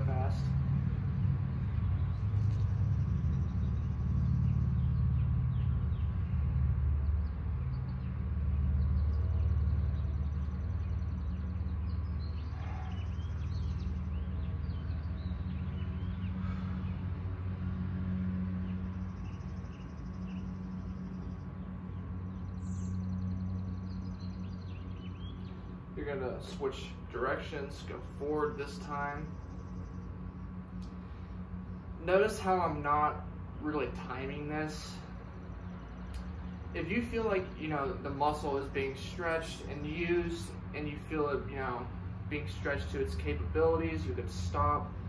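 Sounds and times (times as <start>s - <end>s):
faint constant hum: 0.0s - 45.0s
steady low rumble: 0.0s - 45.0s.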